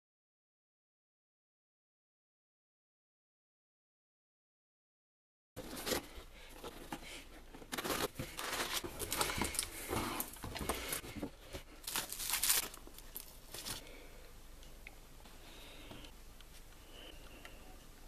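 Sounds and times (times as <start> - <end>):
packaging rustling and tearing: 7.6 - 11.0, 11.8 - 13.8.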